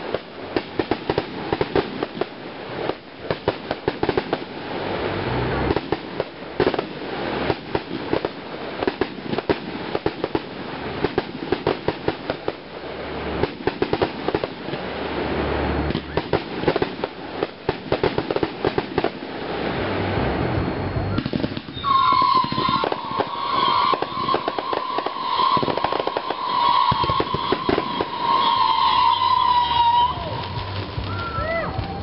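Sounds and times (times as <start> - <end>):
fireworks popping and crackling: 0.0 - 32.0
steady high-pitched tone: 19.9 - 31.5.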